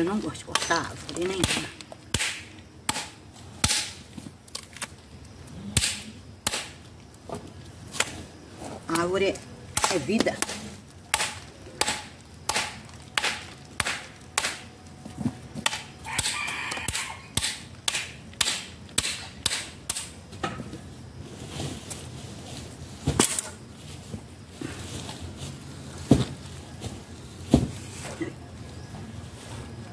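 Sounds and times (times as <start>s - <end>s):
blade chopping tree bark: 1.4s - 4.0s, 9.8s - 14.6s.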